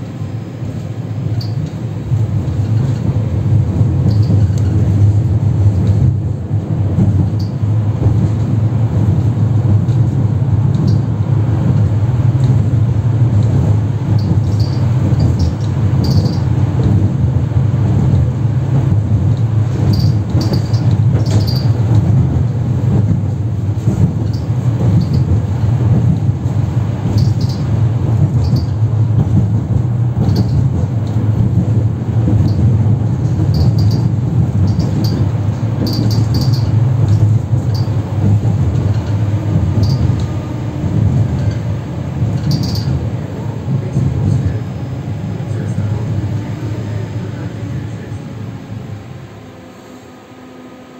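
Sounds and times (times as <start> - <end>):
tram wheels rumbling on rails: 0.0 - 50.9
high-pitched wheel squeaks: 4.0 - 4.7, 14.1 - 16.5, 19.8 - 21.9, 27.1 - 27.7, 28.4 - 28.8, 33.4 - 38.0, 39.6 - 40.3, 42.3 - 43.0.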